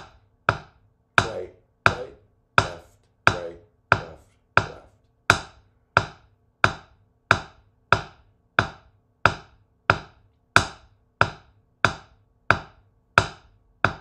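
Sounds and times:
drumsticks tapping practice pad: 0:00.0 - 0:14.0.

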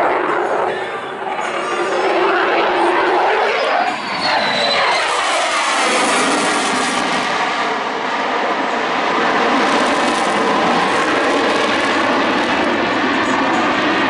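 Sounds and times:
jet flypast with afterburner: 0:00.0 - 0:14.0.

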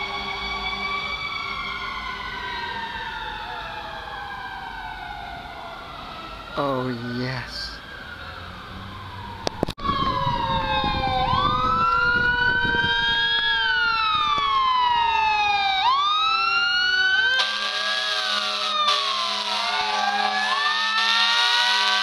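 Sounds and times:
fire truck siren wailing: 0:00.0 - 0:22.0
buzzy air horn blast: 0:17.4 - 0:22.0.

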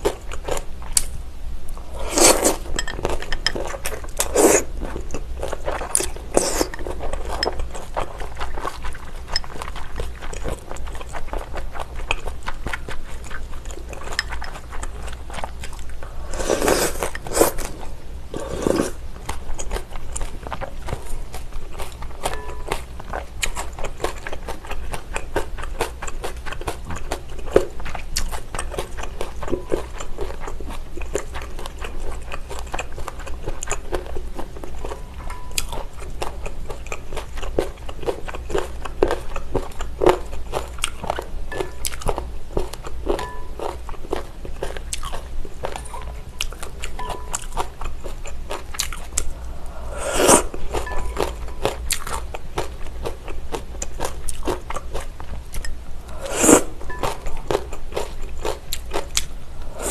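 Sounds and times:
crunching and wet chewing: 0:00.0 - 0:59.9
slurp: 0:02.0 - 0:02.6, 0:18.4 - 0:19.0, 0:49.9 - 0:50.6, 0:56.1 - 0:56.8.

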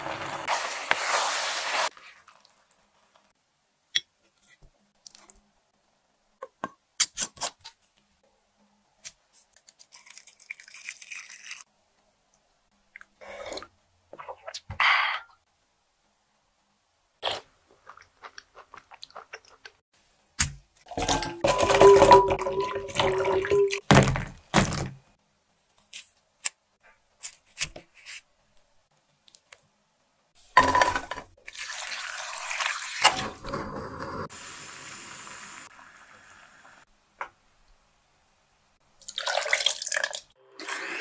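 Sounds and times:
clinking and liquid sounds: 0:20.9 - 0:23.8
pot simmering hiss: 0:31.8 - 0:36.9.

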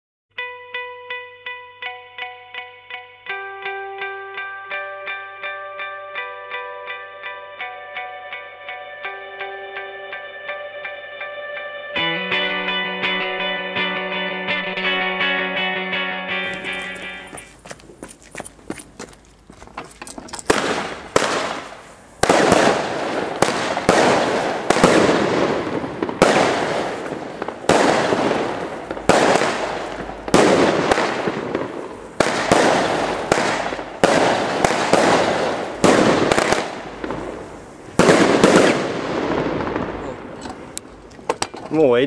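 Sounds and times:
firework bangs with rumble: 0:20.5 - 0:40.0.

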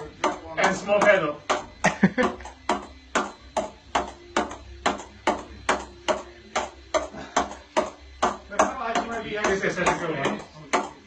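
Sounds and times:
voices: 0:00.0 - 0:02.4, 0:08.4 - 0:11.0
ping-pong ball hits: 0:00.0 - 0:11.0.

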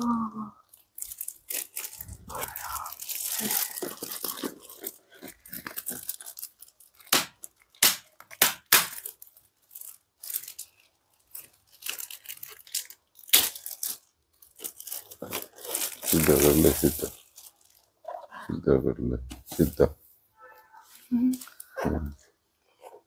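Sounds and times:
plastic wrapping crinkling: 0:00.6 - 0:18.2.

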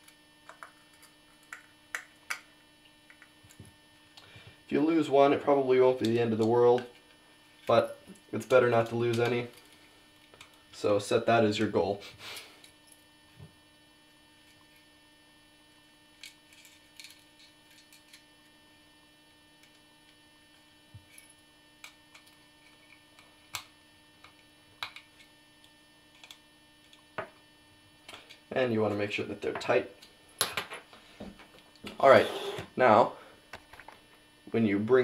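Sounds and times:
low electrical hum: 0:00.0 - 0:35.0.

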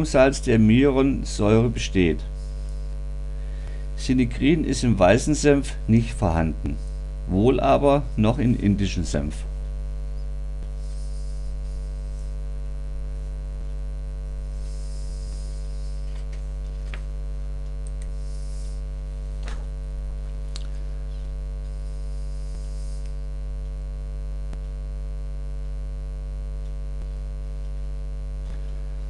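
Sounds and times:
low mains hum: 0:00.0 - 0:29.0
faint clicks: 0:16.1 - 0:18.2.

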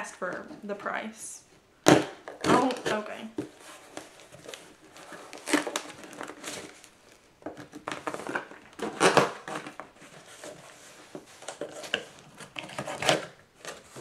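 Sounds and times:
packing material rustling and crinkling: 0:01.9 - 0:14.0
cardboard box being opened: 0:02.4 - 0:06.9.

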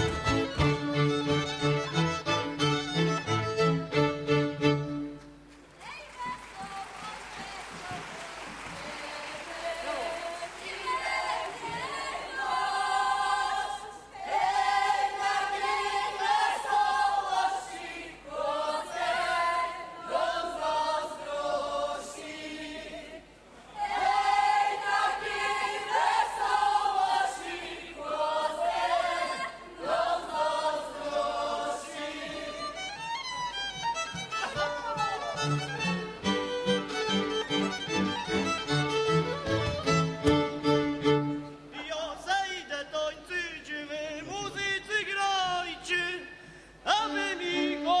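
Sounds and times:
fiddles playing: 0:00.0 - 0:05.4, 0:32.0 - 0:41.7
group singing folk song: 0:08.8 - 0:34.0.

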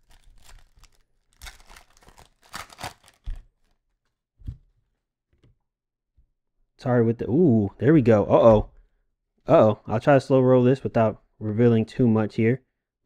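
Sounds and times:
card pack wrapper tearing: 0:00.0 - 0:03.4.

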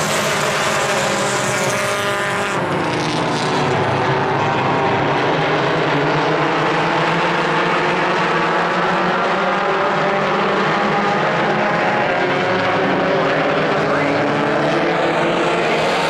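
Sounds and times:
race car engines droning: 0:00.0 - 0:16.0.

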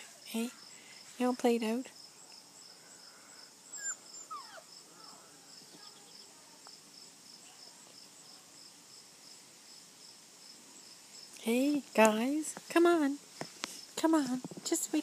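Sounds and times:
crickets chirping: 0:00.0 - 0:12.4
puppy whimpering: 0:03.7 - 0:04.7.

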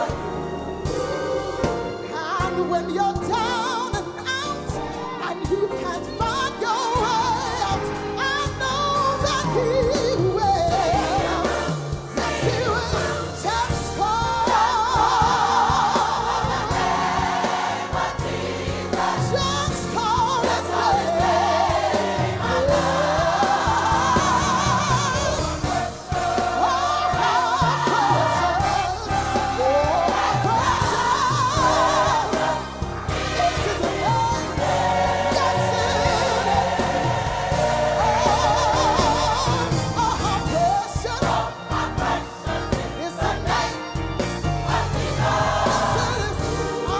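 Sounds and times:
gospel choir singing: 0:00.0 - 0:46.9.

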